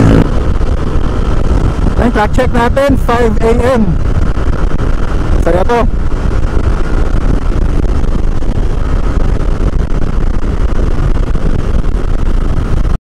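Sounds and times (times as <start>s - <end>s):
scooter engine: 0.0s - 2.1s
faint steady whine: 0.0s - 13.0s
wind and road noise: 0.0s - 13.0s.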